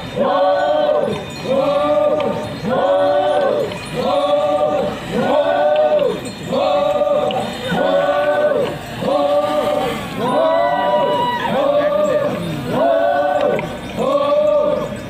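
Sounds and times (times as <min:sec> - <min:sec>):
group singing in unison: 0:00.0 - 0:15.0.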